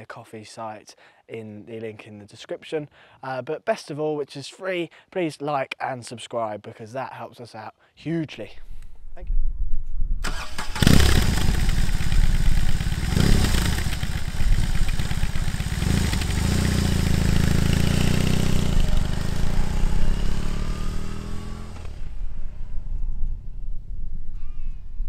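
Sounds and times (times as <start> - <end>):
motorcycle engine revving: 10.3 - 22.6.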